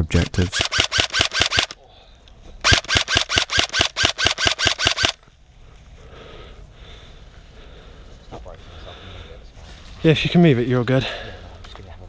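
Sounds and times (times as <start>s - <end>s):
airsoft gun firing bursts: 0.2s - 1.8s, 2.6s - 5.2s.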